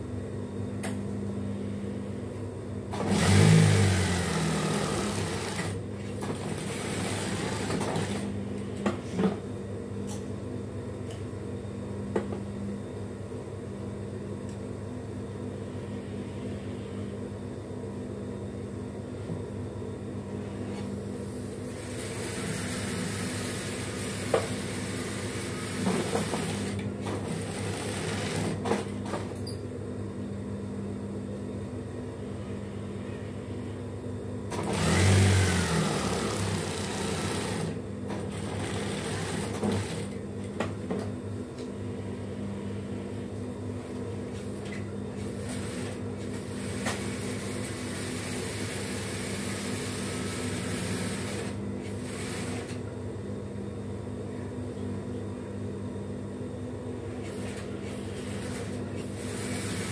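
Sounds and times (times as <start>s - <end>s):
sewing machine motor humming: 2.9s - 8.3s, 21.8s - 28.6s, 34.5s - 40.2s, 45.4s - 52.8s, 57.3s - 59.9s
sewing machine stitching: 2.9s - 8.3s, 21.9s - 28.9s, 34.5s - 40.2s, 57.3s - 59.9s.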